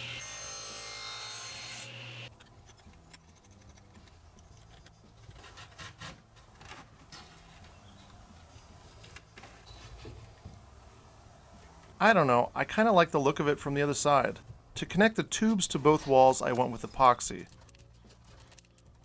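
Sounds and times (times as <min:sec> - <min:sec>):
table saw cutting wood: 0:00.0 - 0:02.3
wood rubbing and scraping: 0:02.4 - 0:10.4.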